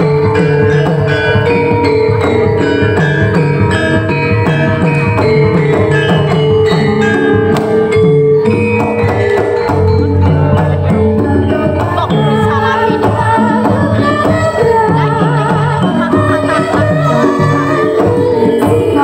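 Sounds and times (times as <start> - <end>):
hand drum beat: 0.0 - 19.0.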